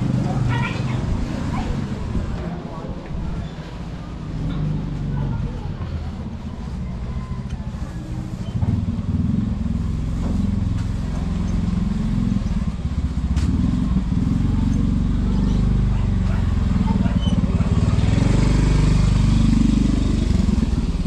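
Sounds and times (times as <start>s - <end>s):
small motorcycle engine running: 8.4s - 21.0s.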